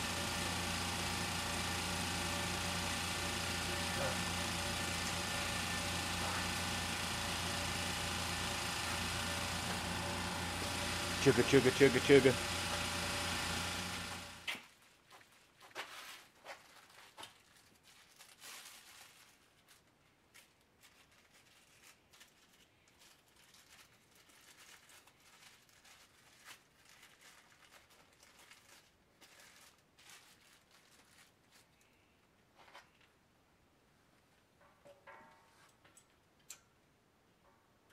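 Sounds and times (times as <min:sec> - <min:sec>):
sheet crinkling and rustling: 0:14.5 - 0:31.9.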